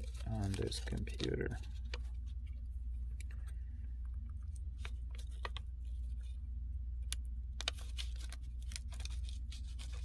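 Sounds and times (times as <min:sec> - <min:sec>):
paper rustling: 0:00.0 - 0:03.6, 0:04.7 - 0:06.4, 0:07.6 - 0:10.0
low hum: 0:00.0 - 0:10.0.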